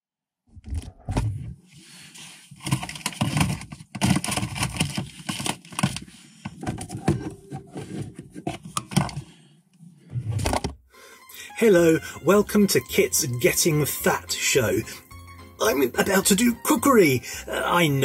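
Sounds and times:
plastic packaging crinkling: 2.5 - 6.0.

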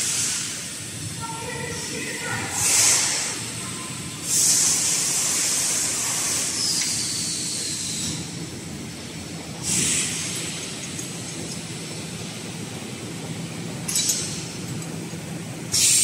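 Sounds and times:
compressed air hissing: 0.0 - 0.9, 2.5 - 8.3, 9.6 - 10.7, 15.7 - 16.0
workshop machinery hum: 0.0 - 16.0.

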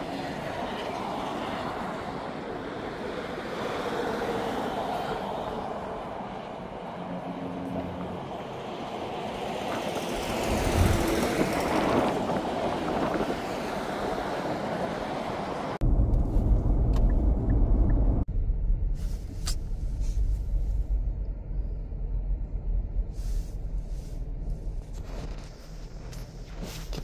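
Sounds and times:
highway traffic rushing past: 0.0 - 18.3
road noise inside a car: 0.0 - 27.0.

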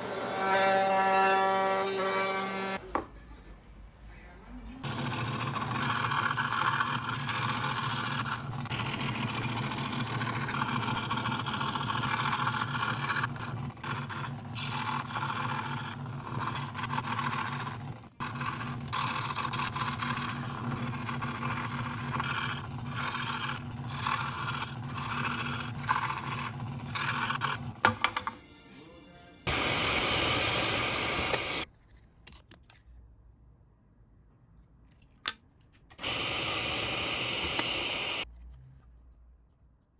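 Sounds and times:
scroll saw cutting wood: 4.8 - 27.9, 29.5 - 31.7, 36.0 - 38.3.

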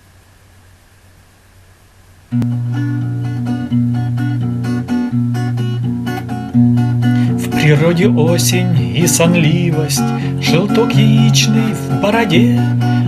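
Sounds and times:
faint hiss: 0.0 - 13.0
acoustic guitar strummed chords: 2.3 - 13.0.

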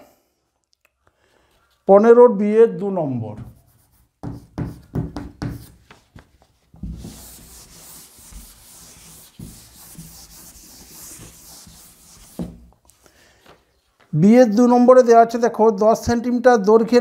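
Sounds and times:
pen scratching on paper: 7.0 - 12.5.

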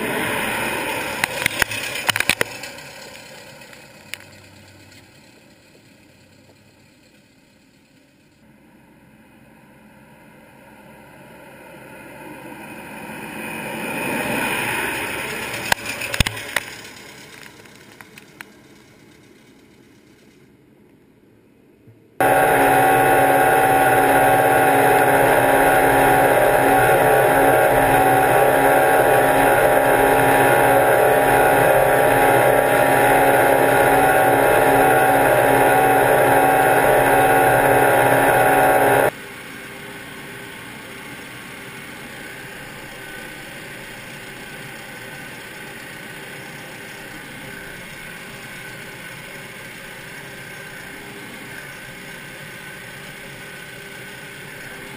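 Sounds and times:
tractor engine running: 0.0 - 8.0, 22.2 - 54.9.

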